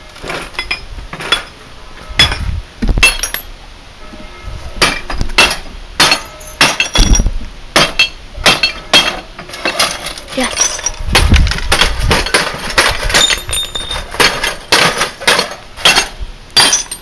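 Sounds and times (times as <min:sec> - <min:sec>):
glass breaking and shards clinking: 0:00.3 - 0:01.6, 0:03.0 - 0:03.5, 0:04.8 - 0:17.0
hammer striking glass: 0:04.8 - 0:09.2, 0:13.2 - 0:17.0.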